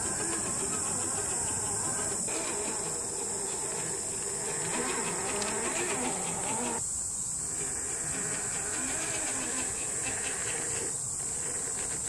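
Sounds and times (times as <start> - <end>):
toy car electric motor whining: 0.0 - 6.8, 7.4 - 12.0
high insect buzz: 0.0 - 12.0.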